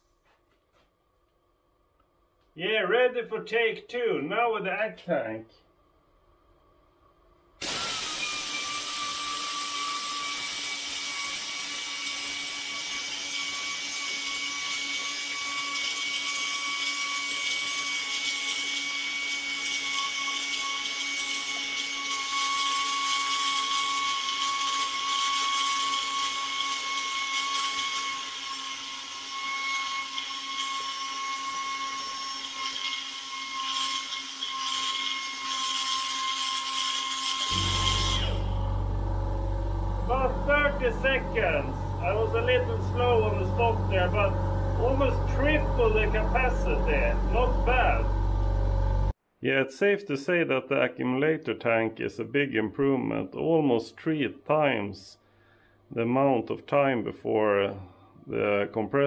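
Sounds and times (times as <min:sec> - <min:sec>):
air hiss: 0:07.6 - 0:09.6
pneumatic grinder whine: 0:07.6 - 0:49.2.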